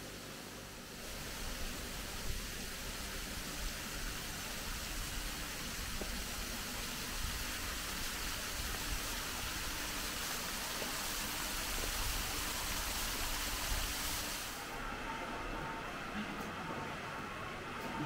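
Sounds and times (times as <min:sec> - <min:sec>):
faint water pump hum: 0:00.0 - 0:18.0
waterfall splashing into pond: 0:01.0 - 0:14.6.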